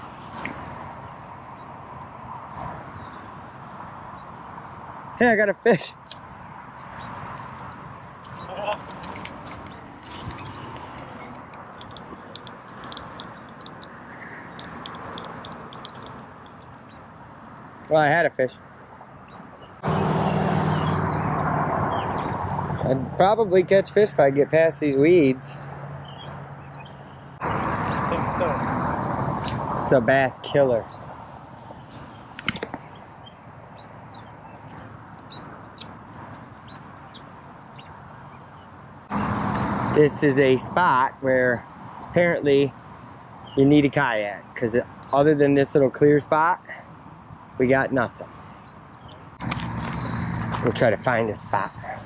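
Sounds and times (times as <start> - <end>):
bird chirps: 6.8 - 17.1, 19.2 - 21.2, 26.0 - 29.7, 46.8 - 52.0
sharp clicks: 8.2 - 16.8, 48.7 - 50.7.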